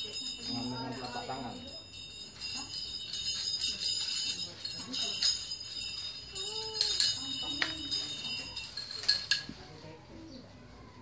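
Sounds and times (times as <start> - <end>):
butterfly knife clinking: 3.6 - 9.6.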